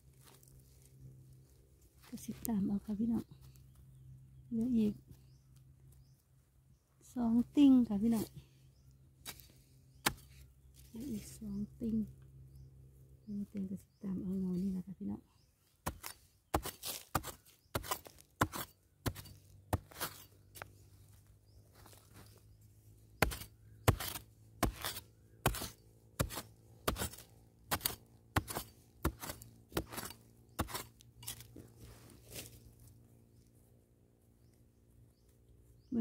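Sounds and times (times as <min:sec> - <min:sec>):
digging tool chopping soil: 0:09.2 - 0:10.4, 0:15.8 - 0:20.7, 0:23.2 - 0:32.6.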